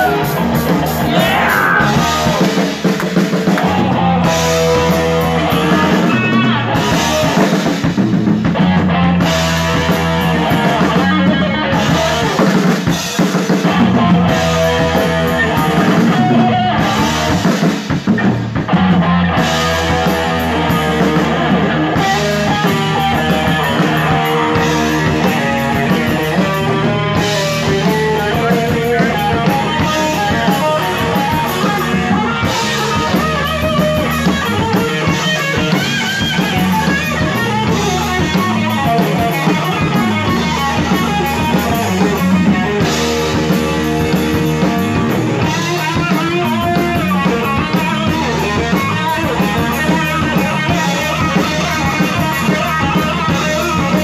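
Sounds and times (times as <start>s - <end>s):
drum kit: 0.0s - 54.0s
electric guitar: 0.0s - 54.0s.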